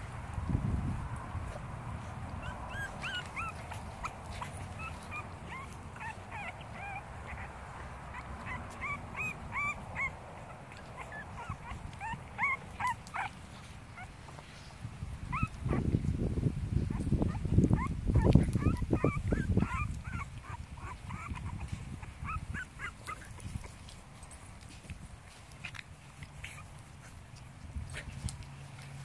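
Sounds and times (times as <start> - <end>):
dogs play growling: 1.6 - 14.5, 17.2 - 24.2
dogs whimpering and yipping: 2.3 - 14.2, 15.3 - 16.0, 16.8 - 24.0.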